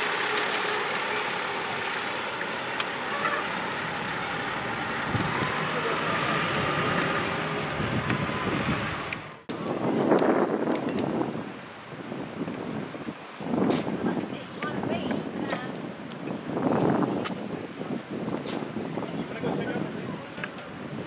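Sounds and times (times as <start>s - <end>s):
fire engine running: 0.0s - 10.0s
wind buffeting microphone: 3.6s - 21.0s.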